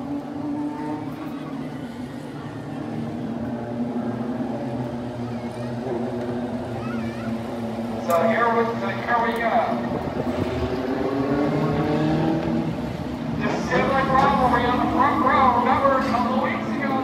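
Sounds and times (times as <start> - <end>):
race car engines droning: 0.0 - 17.0.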